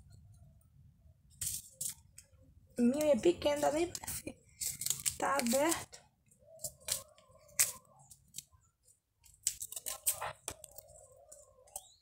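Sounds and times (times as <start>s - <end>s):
paper packet tearing: 3.6s - 6.0s, 6.6s - 8.5s, 9.2s - 10.9s.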